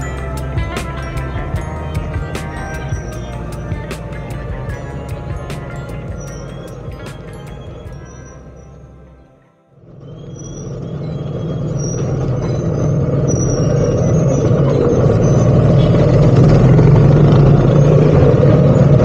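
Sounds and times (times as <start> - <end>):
engine hum with road noise: 0.0 - 19.0
short high squeaks: 9.9 - 16.3.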